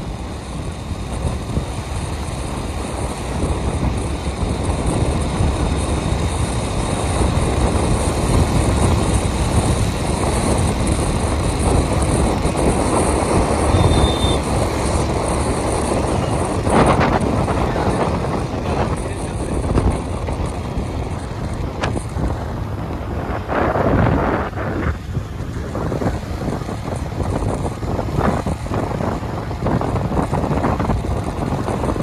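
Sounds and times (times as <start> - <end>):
highway traffic noise: 0.0 - 32.0
high-pitched beep: 13.7 - 14.4.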